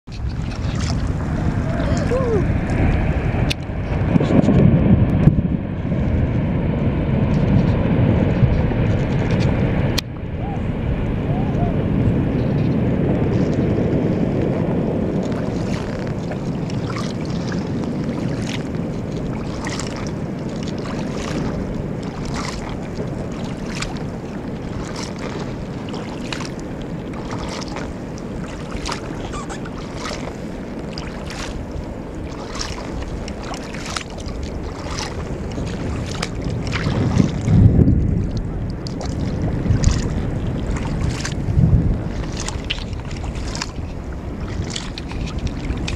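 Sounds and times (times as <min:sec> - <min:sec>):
steady low water wash: 0:00.0 - 0:45.9
low rumble of ice calving: 0:00.1 - 0:19.3, 0:34.0 - 0:45.9.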